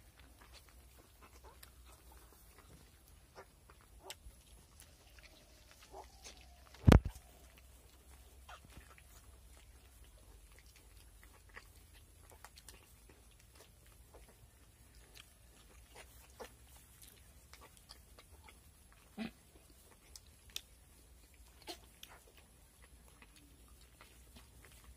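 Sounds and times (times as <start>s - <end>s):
piglets rustling in straw: 0.0s - 24.9s
pig grunt: 19.0s - 19.5s.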